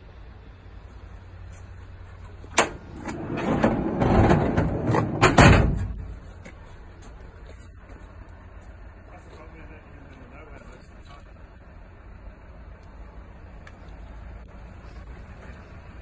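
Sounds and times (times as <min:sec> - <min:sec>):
loud metal clunk: 0:02.5 - 0:06.1
rumbling and knocking: 0:02.6 - 0:06.2.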